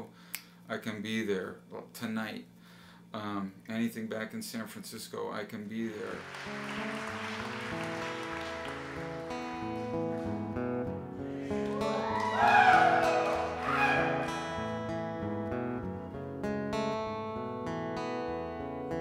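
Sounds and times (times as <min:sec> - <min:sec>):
acoustic guitar music: 0:06.0 - 0:19.0.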